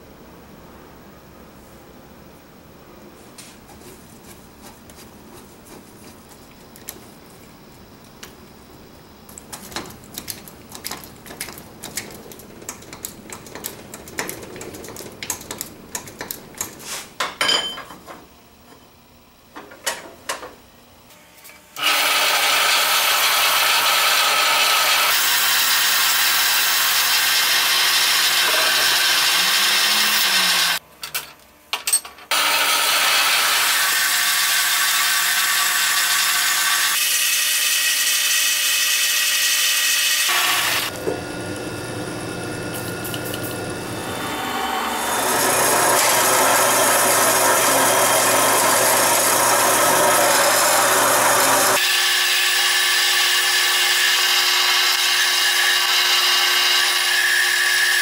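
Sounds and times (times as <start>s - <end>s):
bandsaw cutting steel pipe: 21.8s - 30.8s, 32.3s - 41.2s, 41.8s - 58.0s.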